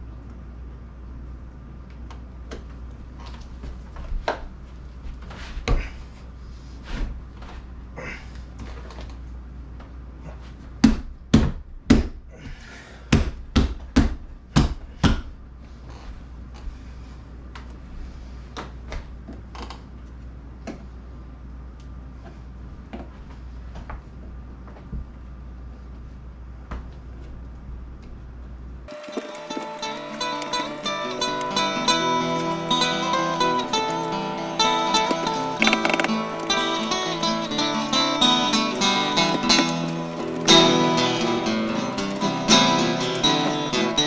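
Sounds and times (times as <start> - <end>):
hands and tools knocking: 35.1 - 36.2
sharp loud knocks: 35.6 - 36.2.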